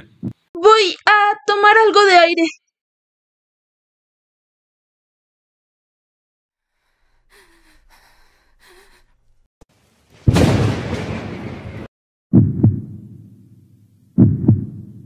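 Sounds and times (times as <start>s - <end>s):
heartbeat thumps: 0.0s - 0.5s, 12.4s - 13.2s, 14.2s - 15.0s
shaky breathing: 6.7s - 9.5s
loud boom with hissing tail: 10.2s - 11.9s.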